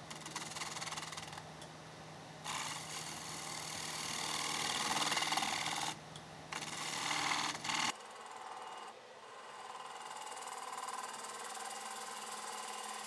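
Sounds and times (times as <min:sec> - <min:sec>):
tool against spinning wooden bowl: 0:00.0 - 0:01.5, 0:02.5 - 0:13.0
wood lathe humming: 0:02.5 - 0:06.0, 0:06.6 - 0:13.0.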